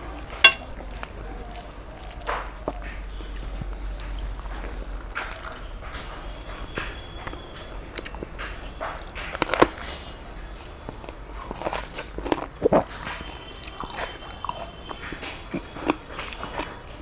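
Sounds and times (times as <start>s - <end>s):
chewing food: 0.0s - 17.0s
chili bitten with a crunch: 7.3s - 17.0s.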